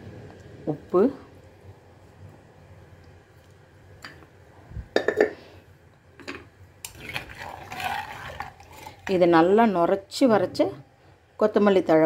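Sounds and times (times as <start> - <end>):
spoon stirring liquid: 6.9 - 9.2.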